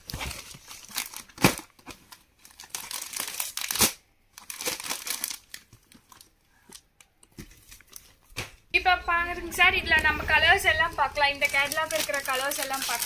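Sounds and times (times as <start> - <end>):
packaging crinkling and rustling: 0.0 - 8.4, 11.2 - 13.0.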